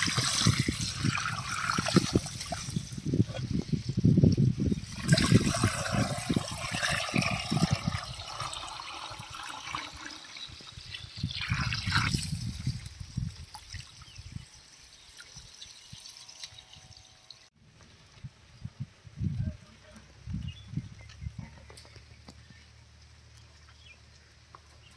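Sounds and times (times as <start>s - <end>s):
water splashing and trickling: 0.0s - 18.1s.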